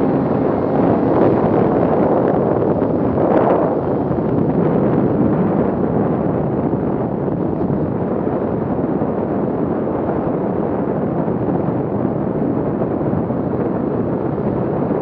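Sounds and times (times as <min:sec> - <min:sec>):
snowmobile engine running: 0:00.0 - 0:04.2
wind buffeting microphone: 0:00.0 - 0:15.0.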